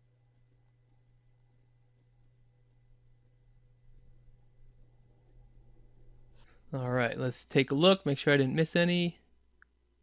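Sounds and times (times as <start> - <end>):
low steady hum: 0.0 - 10.0
computer mouse clicks: 0.3 - 6.6.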